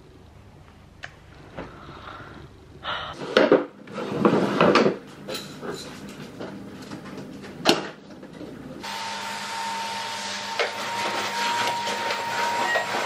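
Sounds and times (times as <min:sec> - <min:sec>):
vacuum cleaner running: 0:08.8 - 0:13.0.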